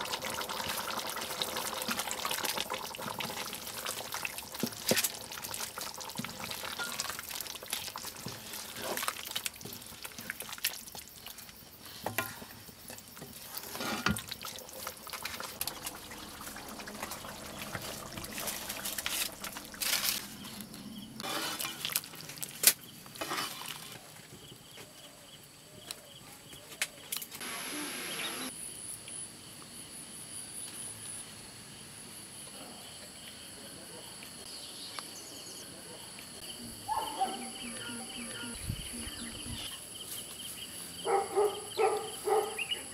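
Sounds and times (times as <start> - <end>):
curry simmering bubbles: 0.0 - 24.0
spatula scraping a wok: 13.2 - 15.4, 21.2 - 22.1, 23.2 - 24.0.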